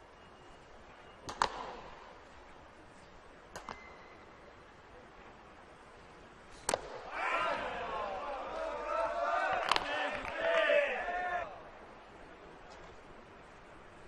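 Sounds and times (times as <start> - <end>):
faint ballpark background: 0.0 - 14.0.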